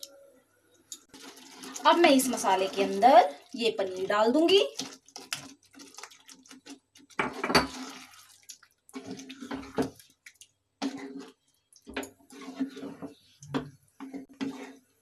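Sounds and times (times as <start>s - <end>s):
spatula stirring thick gravy: 1.1s - 15.0s.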